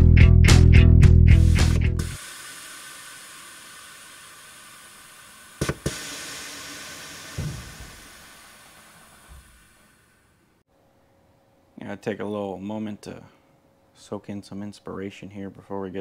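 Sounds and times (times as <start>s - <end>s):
air venting hiss: 1.4s - 10.6s
truck dropping thump: 7.3s - 8.1s.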